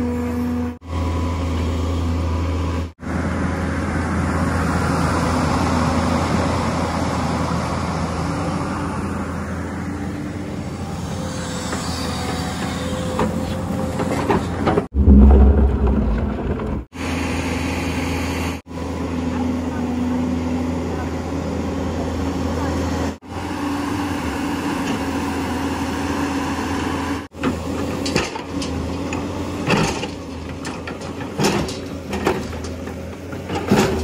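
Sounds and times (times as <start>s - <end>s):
excavator diesel engine under load: 0.0s - 34.0s
low rumble: 14.9s - 16.9s.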